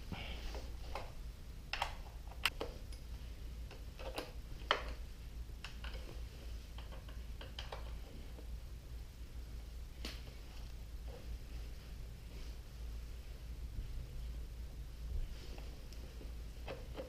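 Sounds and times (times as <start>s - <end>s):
low steady hum: 0.0s - 17.0s
hands clicking and tapping parts: 0.5s - 8.5s.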